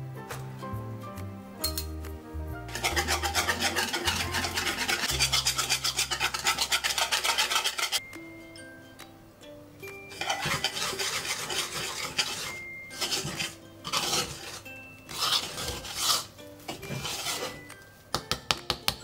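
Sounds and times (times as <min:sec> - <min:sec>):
whisk scraping in wooden bowl: 0:02.7 - 0:08.0, 0:10.1 - 0:17.7.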